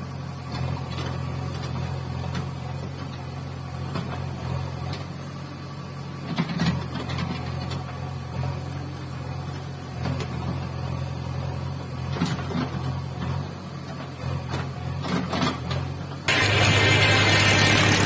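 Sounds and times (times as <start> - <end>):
diesel engines running: 0.0 - 18.0.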